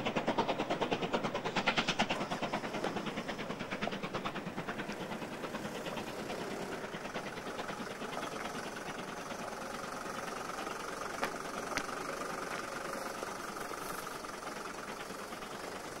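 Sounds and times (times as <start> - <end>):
distant steam locomotive chuffing: 0.0 - 16.0.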